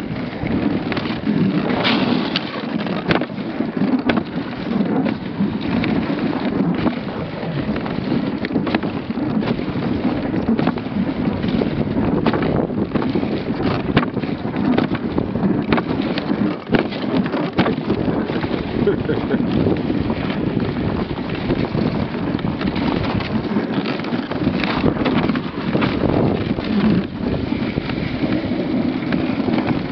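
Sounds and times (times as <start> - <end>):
sled knocks and rattles: 0.0 - 29.9
sled runners sliding over snow: 0.0 - 29.9
wind on microphone: 0.0 - 29.9.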